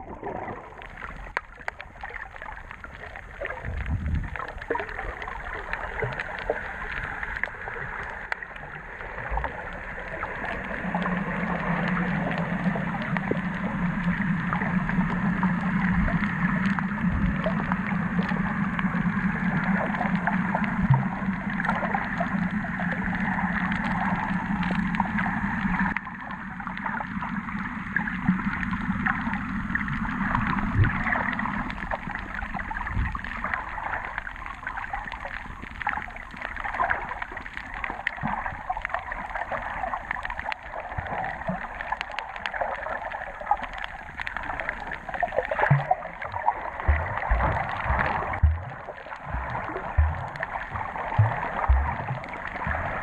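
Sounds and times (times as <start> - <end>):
low hum: 0.0 - 36.4, 42.4 - 53.0
underwater hiss with crackles: 0.0 - 53.0
dull low thumps: 46.9 - 53.0.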